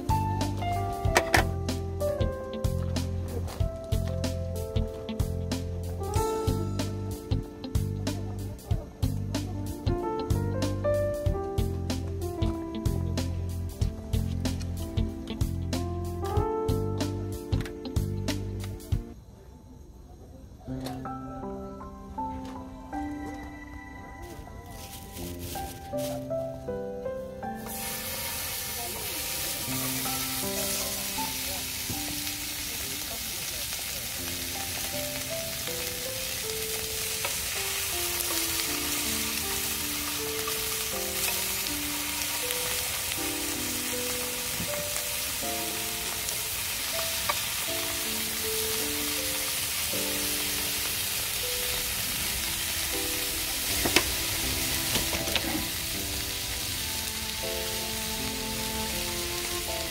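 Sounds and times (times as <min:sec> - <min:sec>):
soft background music: 0:00.0 - 0:59.9
meat sizzling in a frying pan: 0:27.6 - 0:59.9.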